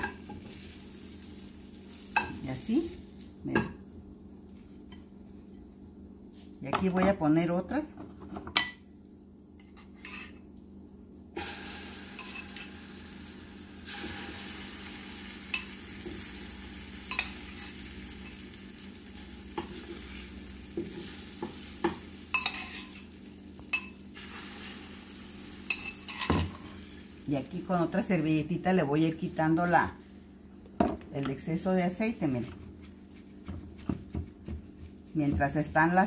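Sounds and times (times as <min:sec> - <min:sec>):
batter sizzling in hot oil: 0:00.0 - 0:06.7, 0:10.9 - 0:30.8.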